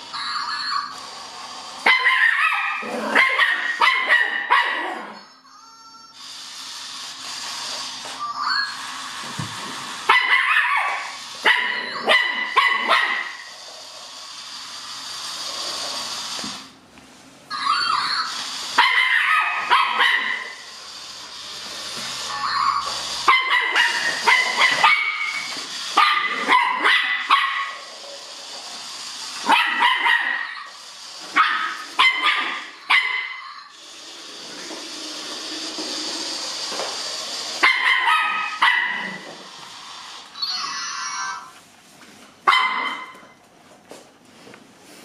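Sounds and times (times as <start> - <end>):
puppy barking: 1.8 - 5.2, 10.1 - 13.5, 18.8 - 20.6, 23.3 - 25.4, 26.0 - 27.8, 29.4 - 30.7, 31.3 - 33.5, 37.6 - 39.2, 42.5 - 43.2.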